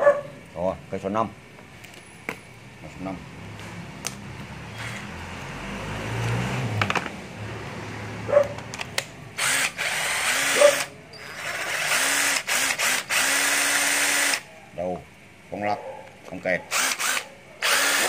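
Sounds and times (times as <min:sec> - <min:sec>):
cordless drill motor running: 0:04.7 - 0:05.1, 0:09.4 - 0:14.4, 0:16.7 - 0:18.0.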